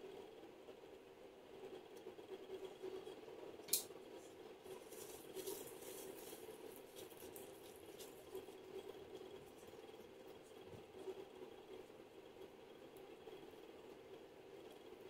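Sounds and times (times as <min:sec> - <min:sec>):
low steady hum: 0:00.0 - 0:15.0
gloved hands rubbing skin: 0:04.6 - 0:08.7.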